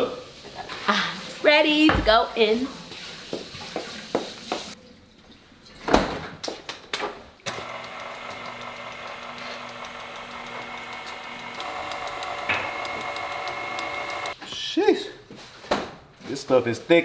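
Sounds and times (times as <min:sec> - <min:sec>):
stand mixer running: 0:07.5 - 0:14.4.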